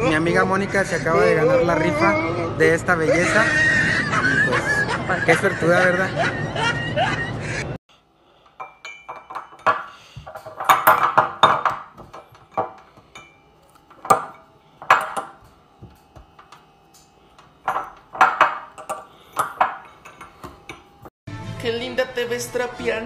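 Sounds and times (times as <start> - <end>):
ceramic mug knocks and clinks: 8.6 - 15.4, 17.6 - 20.9.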